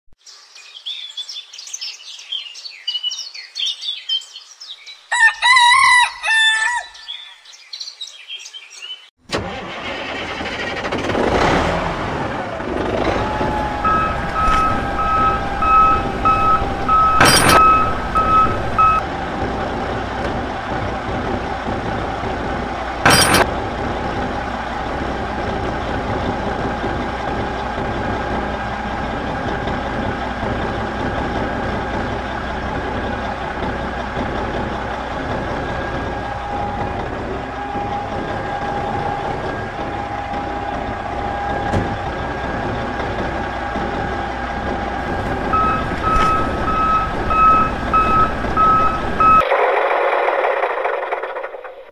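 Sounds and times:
rooster crowing: 0:05.1 - 0:07.2, 0:13.1 - 0:18.4
birds chirping: 0:06.0 - 0:09.1
tractor engine running: 0:09.2 - 0:51.9
short beeps: 0:13.8 - 0:19.0, 0:45.5 - 0:49.4.

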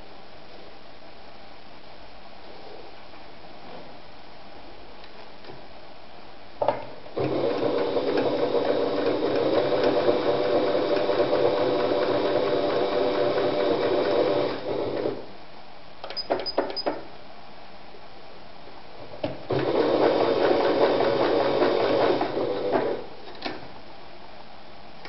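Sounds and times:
sewing machine stitching: 0:07.2 - 0:15.2, 0:19.5 - 0:23.1.

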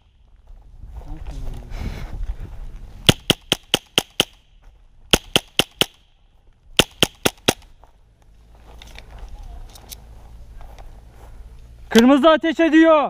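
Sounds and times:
airsoft gun firing: 0:03.0 - 0:04.5, 0:05.1 - 0:06.1, 0:06.8 - 0:07.7.

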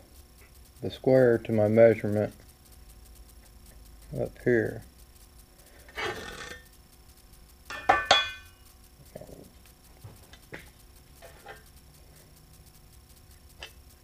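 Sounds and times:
steel scraping on steel beam: 0:05.9 - 0:06.7
ringing metal clank: 0:07.7 - 0:08.6.

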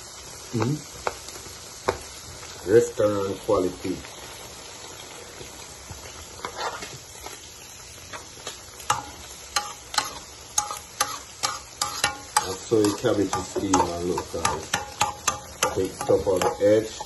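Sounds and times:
vegetables sizzling in a pan: 0:00.0 - 0:17.0
utensil scraping a pan: 0:06.4 - 0:07.0, 0:08.9 - 0:17.0.

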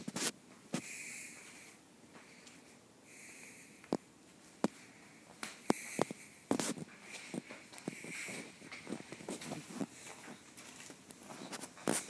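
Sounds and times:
faint breathing: 0:00.7 - 0:04.0, 0:04.6 - 0:10.5.

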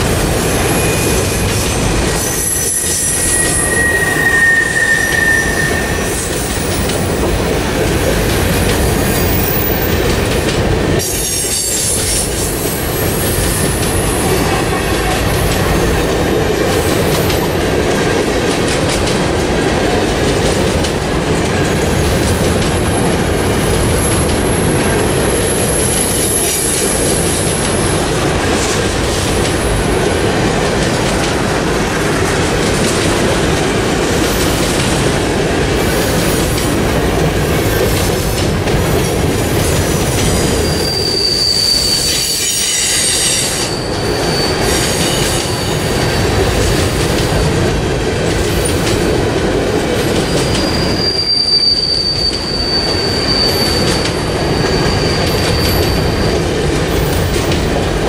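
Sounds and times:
train wheel rumble on rails: 0:00.0 - 0:58.0
high wheel squeal: 0:00.4 - 0:06.9, 0:39.8 - 0:46.7, 0:50.3 - 0:57.6.

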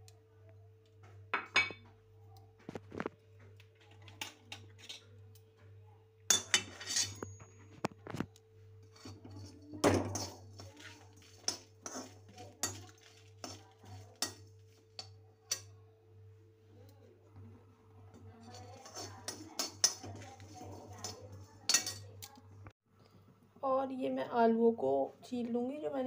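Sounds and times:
spoon scraping metal pan: 0:06.3 - 0:07.9, 0:08.8 - 0:15.8, 0:18.1 - 0:22.4.

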